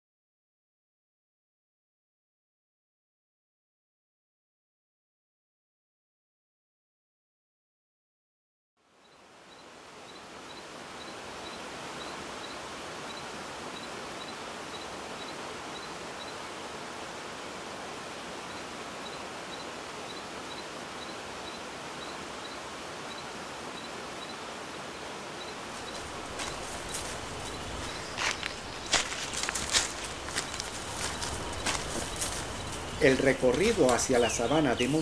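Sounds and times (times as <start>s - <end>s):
stream water rushing: 9.2s - 35.0s
faint high chirp: 25.4s - 35.0s.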